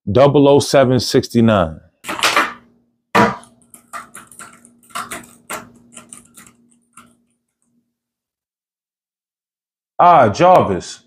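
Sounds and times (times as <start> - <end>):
laptop keyboard typing: 3.4 - 7.7.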